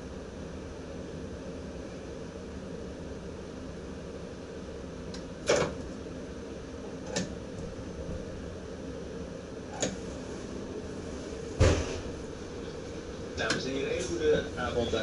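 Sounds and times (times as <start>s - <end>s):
train cab hum: 5.1s - 15.0s.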